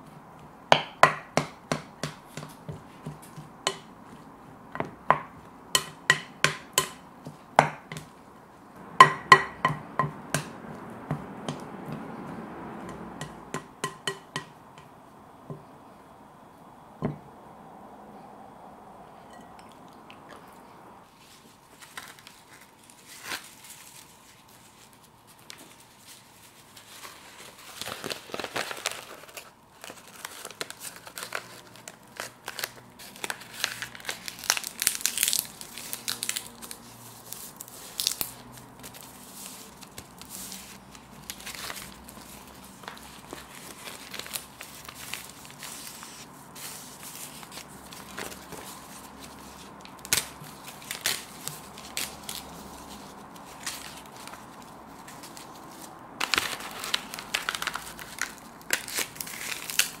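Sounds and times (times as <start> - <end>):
seaweed sheet crackling: 21.3 - 60.0.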